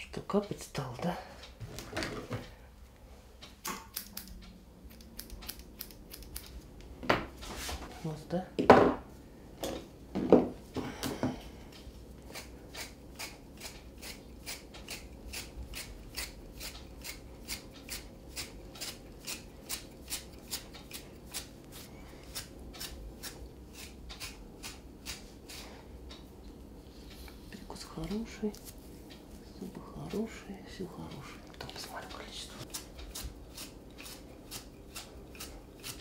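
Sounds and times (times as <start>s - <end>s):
grooming scissors snipping: 3.7s - 6.6s, 12.3s - 26.2s, 32.6s - 36.0s.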